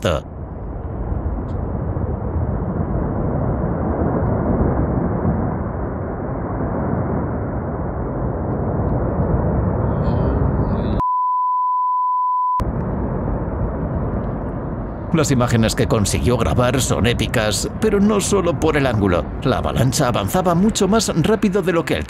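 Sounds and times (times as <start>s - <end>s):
avalanche rushing: 0.0s - 11.0s, 12.6s - 22.0s
censor beep: 11.0s - 12.6s.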